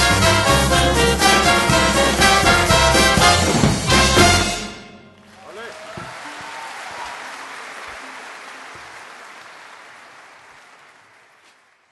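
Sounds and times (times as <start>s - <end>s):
audience applauding: 5.2s - 11.9s.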